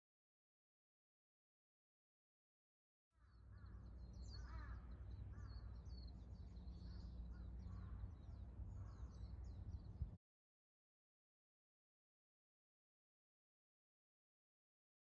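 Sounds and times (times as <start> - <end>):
lower fuller bird calls: 3.2 - 10.1.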